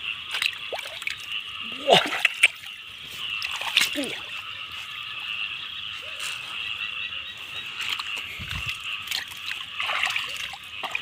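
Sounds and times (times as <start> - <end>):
frogs calling in chorus: 0.0 - 11.0.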